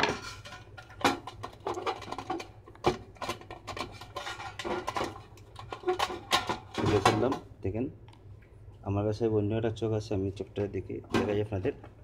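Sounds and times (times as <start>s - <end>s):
clicks knocks and scraping on metal: 0.0s - 7.4s.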